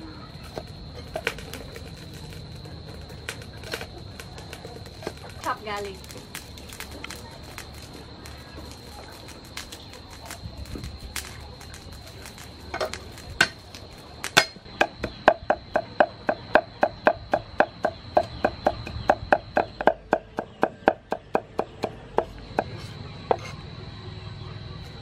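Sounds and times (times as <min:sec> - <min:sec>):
cleaver chopping on wooden board: 0:14.4 - 0:23.5.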